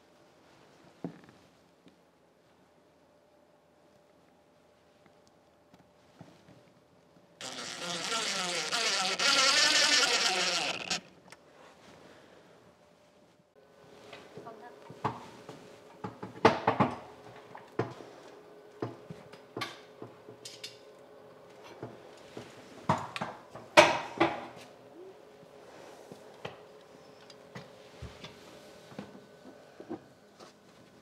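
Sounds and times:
plastic tubing rattling: 0:07.4 - 0:11.1.

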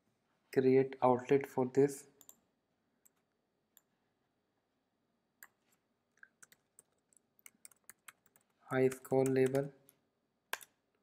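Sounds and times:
keyboard and mouse clicks: 0:05.4 - 0:09.7, 0:10.5 - 0:10.8.

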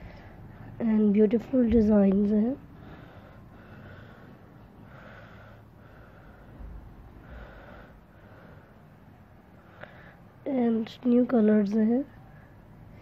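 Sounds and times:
faint breathing: 0:00.0 - 0:00.8, 0:02.6 - 0:10.4
low room noise: 0:00.0 - 0:13.0.

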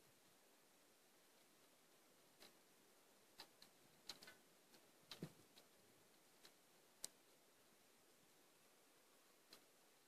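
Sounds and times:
faint clicks and knocks on pipes: 0:01.2 - 0:07.5, 0:09.2 - 0:09.9.

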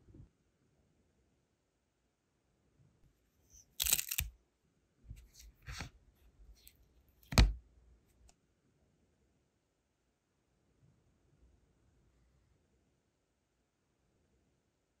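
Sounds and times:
wax seal crackling and peeling: 0:03.7 - 0:04.3.

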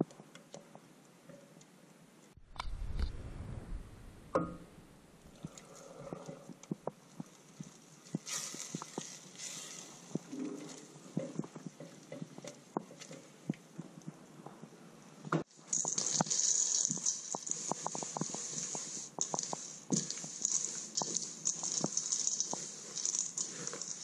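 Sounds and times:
spatula stirring in saucepan: 0:15.5 - 0:24.0.

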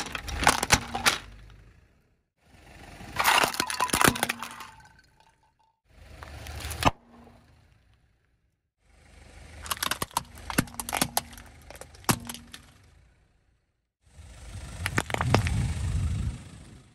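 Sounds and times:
car tyre crushing brittle objects: 0:00.0 - 0:01.8, 0:03.2 - 0:05.3, 0:06.1 - 0:08.1, 0:09.5 - 0:13.1, 0:14.8 - 0:15.6.

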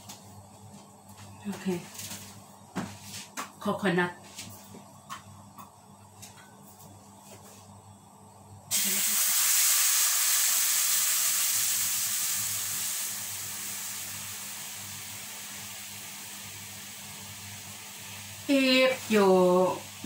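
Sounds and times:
liquid sizzling in hot wok: 0:08.7 - 0:20.0.

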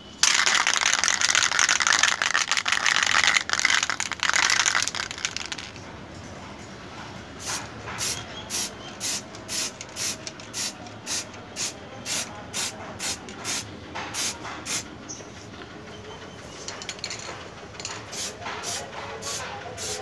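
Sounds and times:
spray can hissing bursts: 0:07.4 - 0:14.9, 0:18.1 - 0:20.0.

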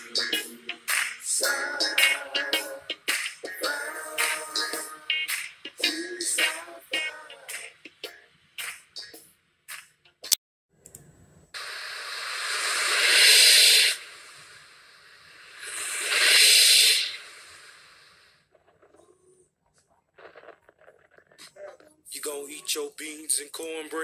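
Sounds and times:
rushes of hiss-like noise: 0:11.6 - 0:18.5.

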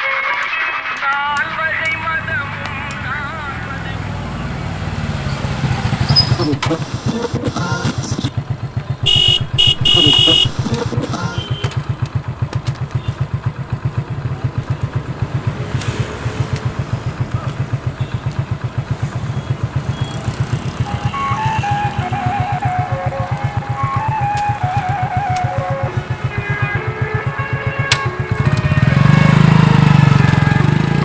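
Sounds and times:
small engine idling: 0:01.4 - 0:31.0
short high-pitched horn blasts: 0:09.0 - 0:11.8.

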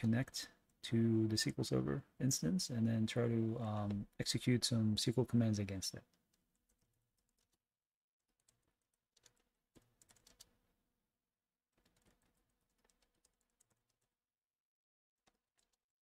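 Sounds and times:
keyboard typing: 0:08.3 - 0:10.6, 0:11.8 - 0:14.1.

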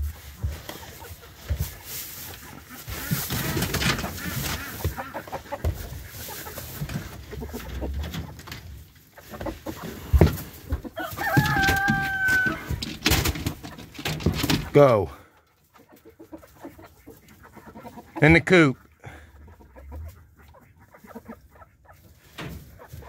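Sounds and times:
chickens clucking: 0:00.0 - 0:23.0
rustling and knocking in coop: 0:00.0 - 0:23.0
rooster crowing: 0:11.0 - 0:12.8.

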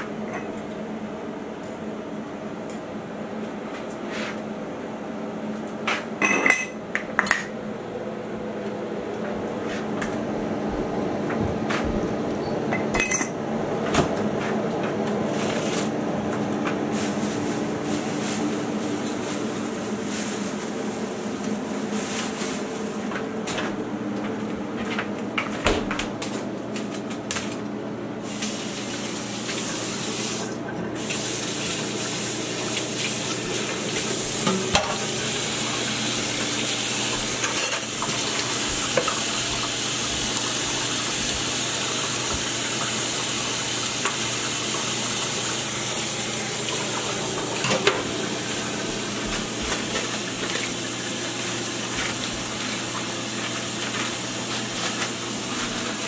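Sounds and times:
dishes and utensils clattering: 0:06.2 - 0:07.5, 0:12.4 - 0:13.4
tap running: 0:28.4 - 0:56.0.

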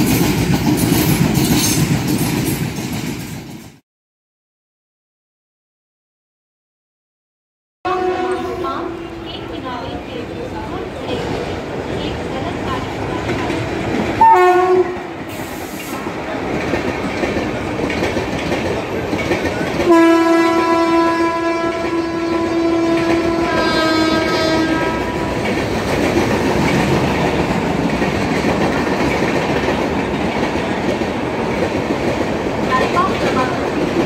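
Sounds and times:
train coaches rumbling and clacking: 0:00.0 - 0:03.8, 0:08.0 - 0:34.0
locomotive horn: 0:07.8 - 0:09.5, 0:14.2 - 0:15.1, 0:19.9 - 0:25.5.

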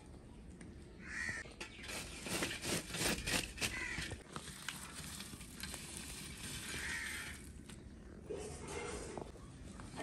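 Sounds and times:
ladle scraping charcoal embers: 0:01.5 - 0:09.3.

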